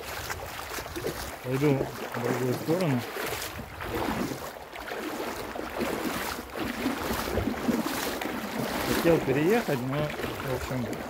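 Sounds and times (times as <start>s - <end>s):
wind buffeting microphone: 0.0s - 1.9s, 2.8s - 4.5s, 6.7s - 11.0s
river water rushing over gravel: 0.0s - 11.0s.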